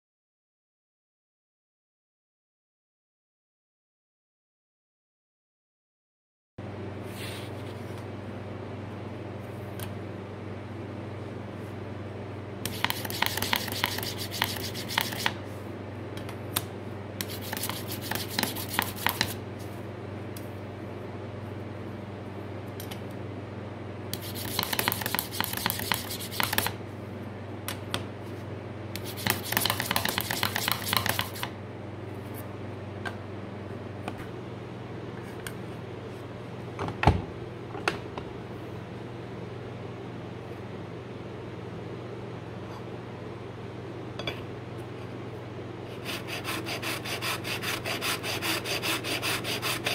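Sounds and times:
steel rubbing on steel edge: 12.7s - 15.3s.

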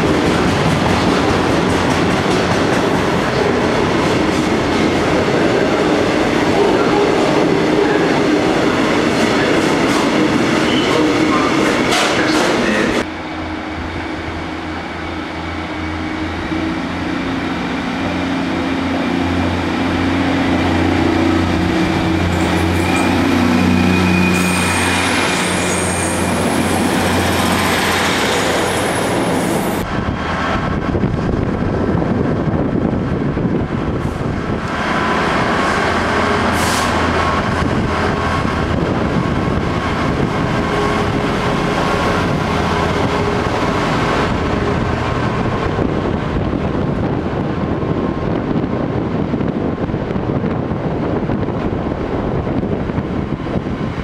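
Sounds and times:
train engine droning: 0.0s - 54.0s
high wheel squeal: 22.3s - 29.8s.

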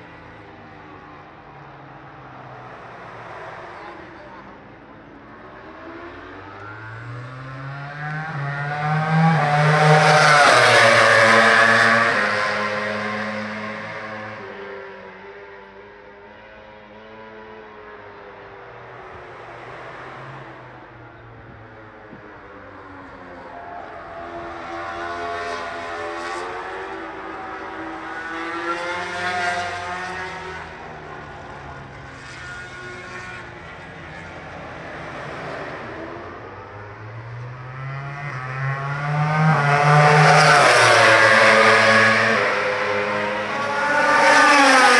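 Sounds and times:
racing motorcycle passing at high revs: 5.3s - 18.1s, 22.6s - 44.9s.

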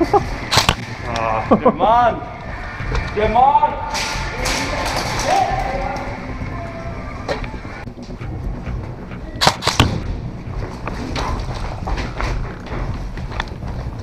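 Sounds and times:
sharp cracks: 0.4s - 1.2s, 9.4s - 10.0s.

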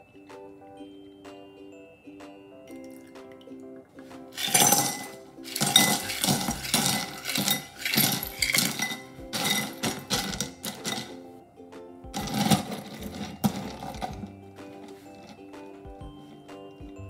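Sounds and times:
soft background music: 0.0s - 17.0s
ice cubes clinking into glass bowl: 4.4s - 11.2s, 12.2s - 15.5s.

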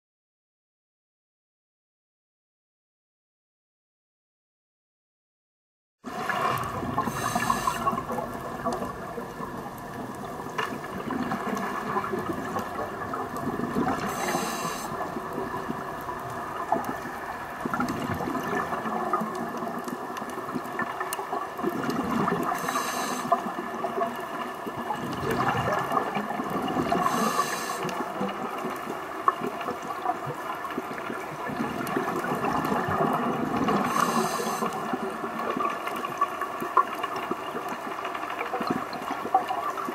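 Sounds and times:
low bubbling surges: 6.1s - 22.6s
underwater hiss and crackle: 6.1s - 39.9s
scuba regulator hiss: 7.0s - 8.0s, 14.0s - 15.0s, 22.6s - 23.4s, 27.0s - 27.9s, 33.9s - 34.8s.

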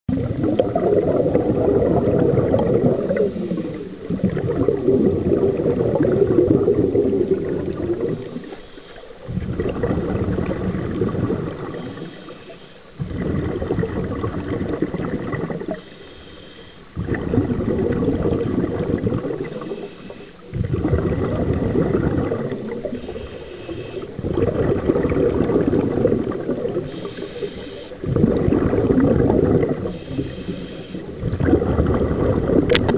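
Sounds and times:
exhaled bubbles rumbling: 0.1s - 16.1s, 16.8s - 32.9s
regulator inhale hiss: 3.0s - 4.1s, 8.2s - 9.4s, 11.6s - 13.0s, 15.6s - 17.0s, 19.3s - 20.5s, 22.9s - 24.2s, 26.7s - 28.0s, 29.8s - 31.2s.

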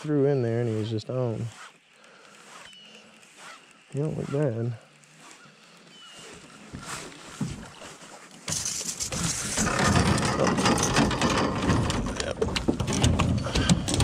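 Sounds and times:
gear knocking in metal boat: 8.5s - 14.0s.

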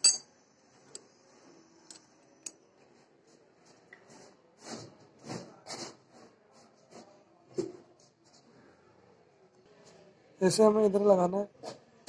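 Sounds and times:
metal bearing parts clinking: 0.0s - 0.3s.

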